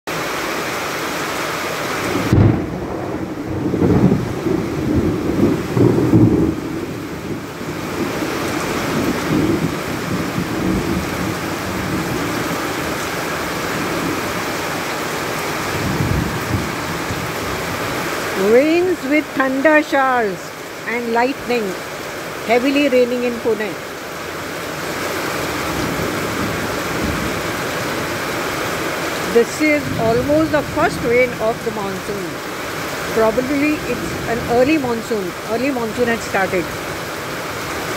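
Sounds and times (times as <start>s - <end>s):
heavy rain on pavement: 0.1s - 37.9s
thunder rumbling: 2.0s - 20.6s, 25.4s - 28.3s, 29.2s - 37.0s.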